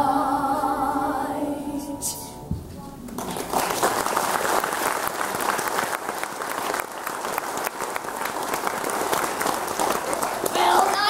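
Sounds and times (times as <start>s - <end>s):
audience applauding: 3.1s - 11.0s.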